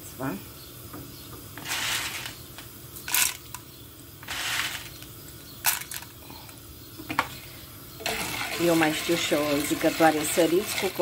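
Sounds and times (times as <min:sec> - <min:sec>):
spoon stirring popcorn kernels: 0:08.0 - 0:11.0.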